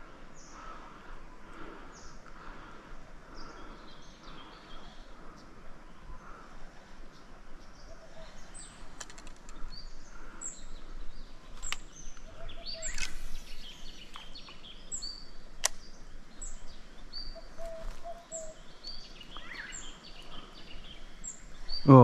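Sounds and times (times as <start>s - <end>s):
birds chirping and whistling: 7.1s - 22.0s
sharp clicks: 8.9s - 9.7s, 11.6s - 13.3s, 15.6s - 15.9s.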